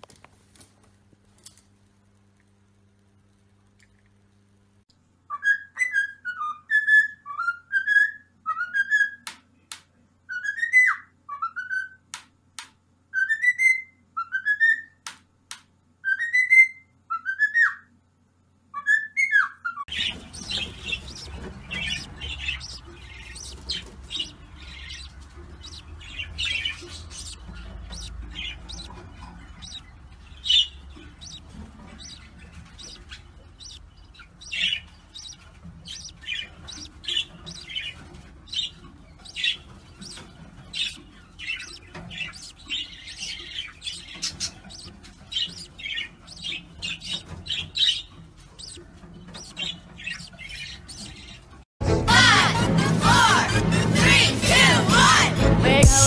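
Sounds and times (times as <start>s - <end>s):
budgerigars chirping: 18.9s - 51.5s.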